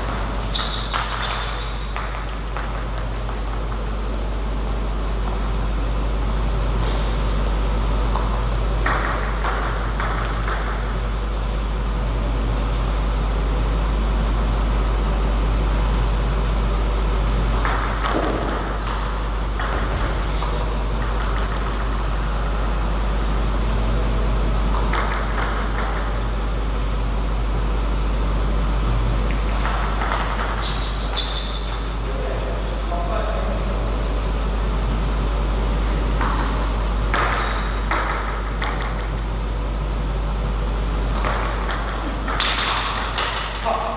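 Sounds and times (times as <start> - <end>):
table tennis ball clicking: 24.7 - 26.2.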